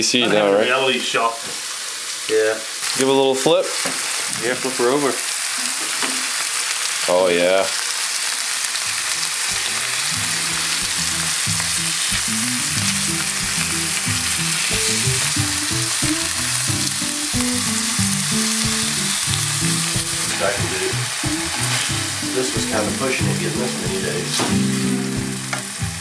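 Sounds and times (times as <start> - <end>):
meat sizzling in a skillet: 0.2 - 26.0
low background music: 8.9 - 26.0
spatula scraping skillet: 18.2 - 22.2.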